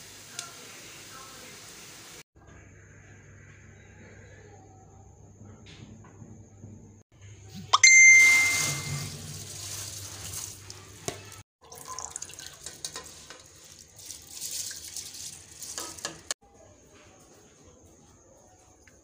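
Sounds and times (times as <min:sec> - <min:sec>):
water sloshing and trickling: 0:08.3 - 0:16.4.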